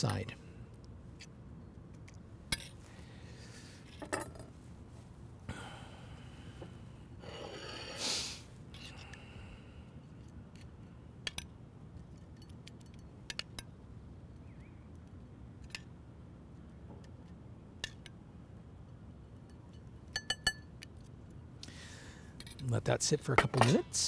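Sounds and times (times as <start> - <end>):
faint background noise: 0.0 - 24.0
metal spoon clinking on saucepan: 20.2 - 20.7.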